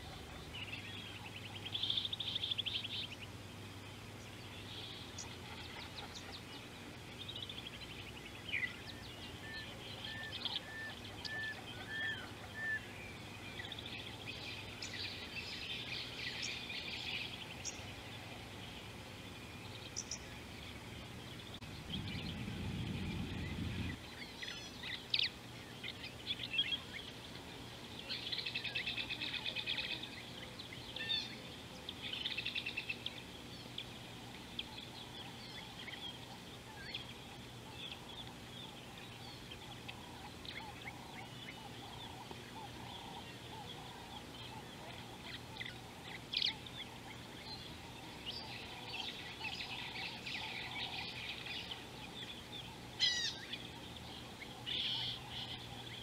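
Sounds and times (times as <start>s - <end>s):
birds whistling and trilling: 4.5s - 27.2s, 27.9s - 56.0s
low rumble: 21.6s - 24.0s.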